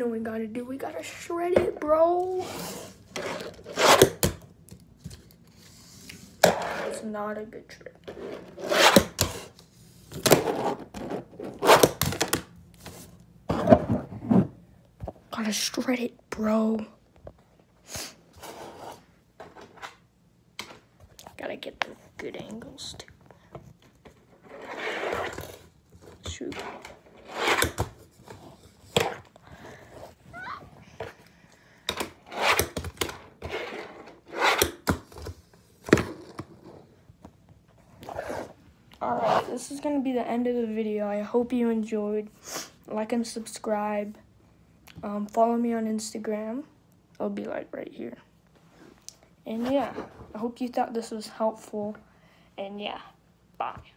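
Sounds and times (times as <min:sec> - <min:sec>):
fingerboard wheels rolling: 0:24.4 - 0:25.7, 0:26.5 - 0:29.3, 0:31.9 - 0:35.2
small wheels rolling and scraping: 0:32.3 - 0:34.7.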